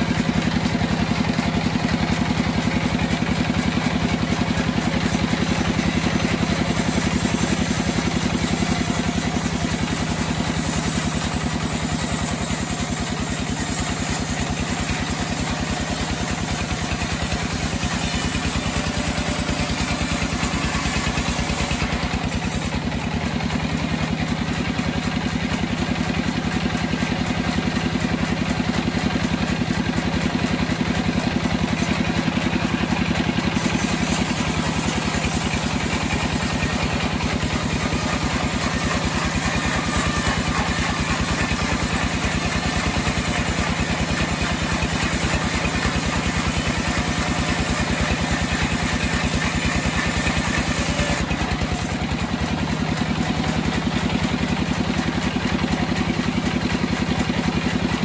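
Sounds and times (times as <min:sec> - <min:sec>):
sawmill drive drone: 0:00.0 - 0:58.0
saw blade cutting hiss: 0:05.0 - 0:24.1, 0:31.7 - 0:52.5.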